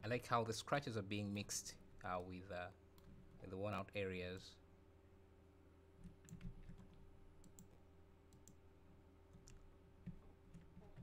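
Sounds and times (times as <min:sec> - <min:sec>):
steady low hum: 0:00.0 - 0:11.0
computer mouse clicking: 0:06.0 - 0:08.6, 0:09.3 - 0:11.0.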